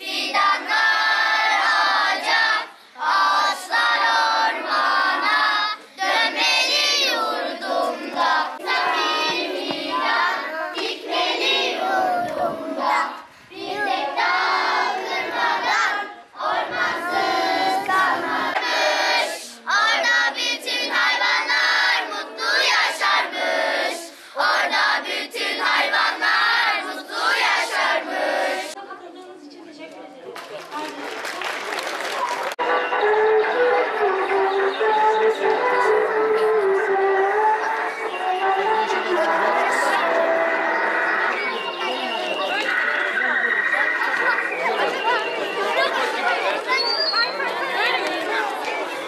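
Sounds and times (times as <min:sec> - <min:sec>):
children singing in unison: 0:00.0 - 0:28.8, 0:32.6 - 0:46.8.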